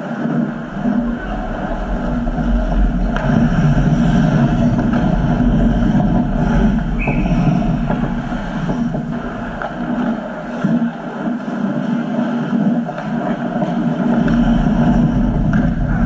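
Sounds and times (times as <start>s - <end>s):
low rumble: 0.0s - 11.9s, 12.6s - 16.0s
sticks and skates clicking on ice: 3.1s - 16.0s
referee's whistle: 7.0s - 7.6s.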